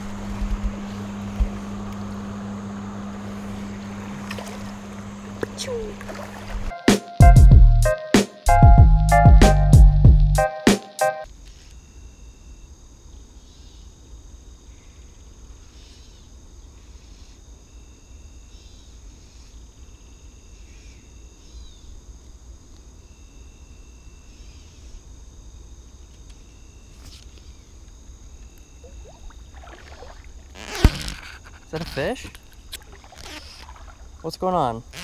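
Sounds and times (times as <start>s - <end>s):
short evenly pitched calls: 33.1s - 35.0s.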